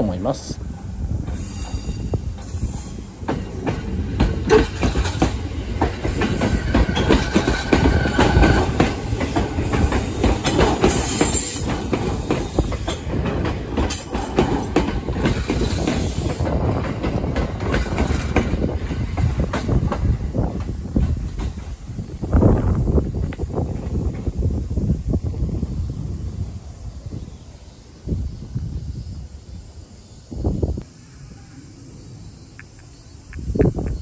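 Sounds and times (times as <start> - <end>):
train rumble: 0.0 - 34.0
train wheels clattering over rails: 1.2 - 22.0.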